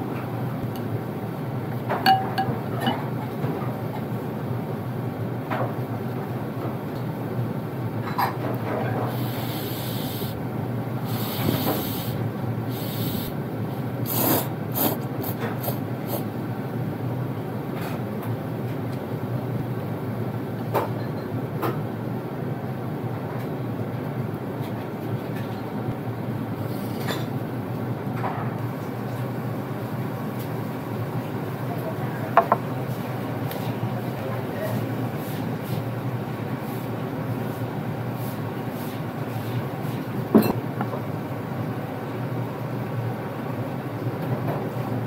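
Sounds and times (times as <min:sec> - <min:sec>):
restaurant room rumble: 0:00.0 - 0:45.0
noodles being slurped: 0:14.0 - 0:16.3.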